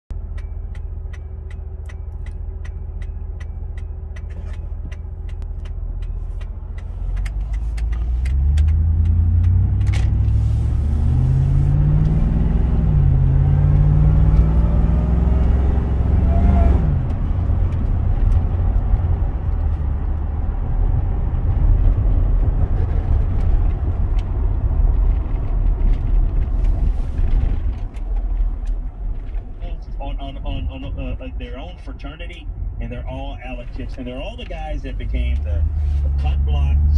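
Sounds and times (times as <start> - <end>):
road noise: 0.1 - 36.9
truck engine accelerating: 0.1 - 36.9
supercharger whine: 7.2 - 26.4.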